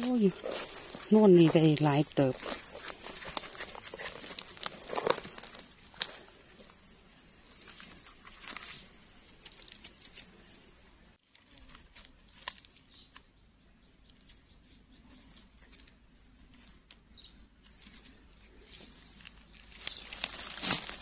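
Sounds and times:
dry leaves rustling and crackling: 0.0 - 6.3, 11.2 - 13.1, 17.7 - 21.0.

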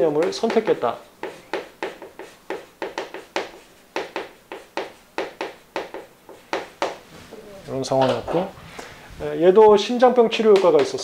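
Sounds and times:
chalk tapping on chalkboard: 0.0 - 7.1, 10.5 - 11.0.

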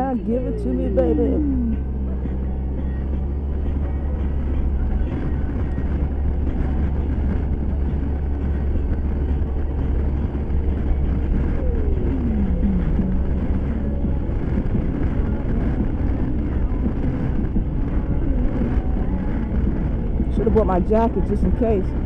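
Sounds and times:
road noise: 0.0 - 22.0
scooter engine drone: 0.0 - 22.0
wind rushing over microphone: 1.4 - 22.0
short falling tone: 11.2 - 14.0.

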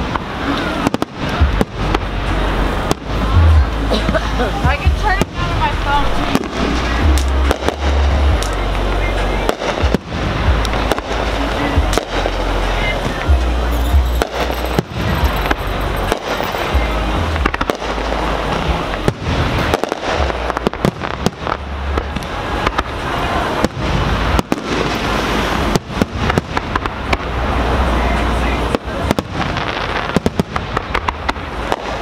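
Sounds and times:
fireworks crackling: 0.0 - 32.0
firework shells bursting: 13.7 - 21.6.

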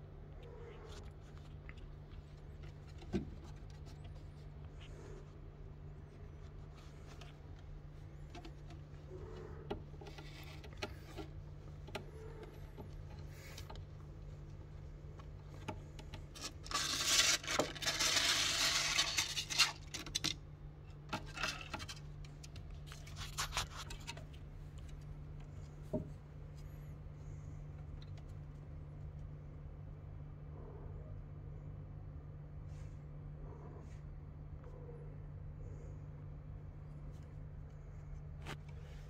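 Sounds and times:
steady low hum: 0.0 - 39.0
claws scrabbling on wood: 0.6 - 26.9.

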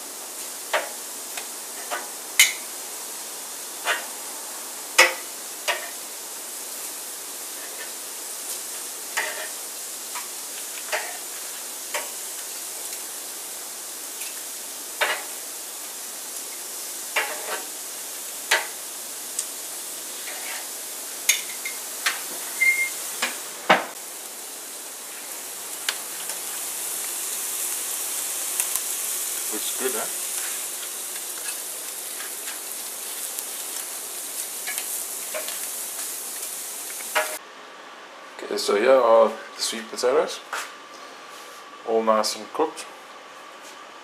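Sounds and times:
steady hiss: 0.0 - 37.5
pots and utensils clinking: 1.8 - 2.6, 9.2 - 9.6, 10.9 - 11.2, 21.3 - 23.9, 37.0 - 37.4.

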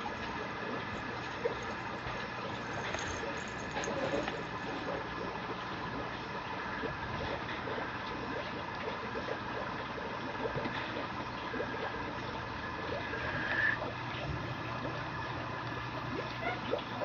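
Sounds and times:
background hiss and hum: 0.0 - 17.0
puppy scratching and rustling: 0.1 - 4.6.

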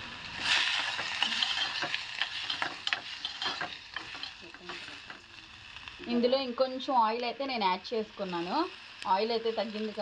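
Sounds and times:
food sizzling in oil: 0.0 - 10.0
spoon scraping metal pot: 0.4 - 5.2.

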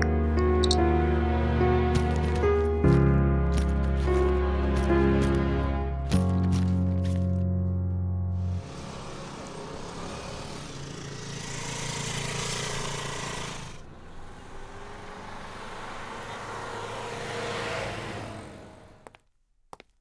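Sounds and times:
motor scooter passing: 8.4 - 19.0
car engine driving up: 8.4 - 19.1.

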